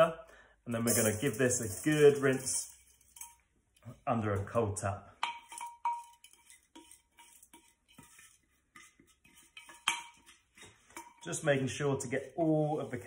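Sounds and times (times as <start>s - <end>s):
glass jar ringing: 0.8s - 3.4s
spatula scraping glass jar: 5.2s - 13.0s.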